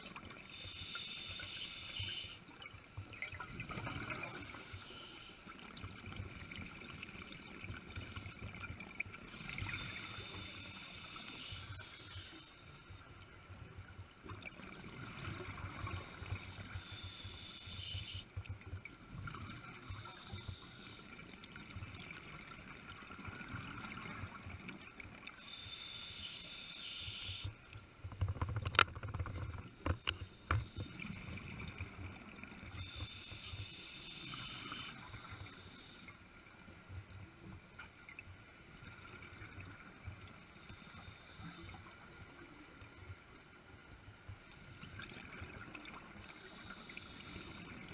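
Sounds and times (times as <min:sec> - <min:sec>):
diver's regulator breathing underwater: 0:00.4 - 0:02.4, 0:09.6 - 0:12.6, 0:15.6 - 0:18.3, 0:19.8 - 0:21.2, 0:25.4 - 0:27.6, 0:29.8 - 0:31.2, 0:32.7 - 0:36.1, 0:46.2 - 0:47.9.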